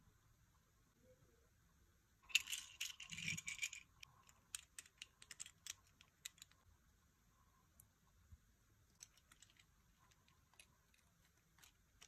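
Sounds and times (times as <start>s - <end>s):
plastic toys rattling and rustling: 2.2s - 6.6s, 8.9s - 12.0s.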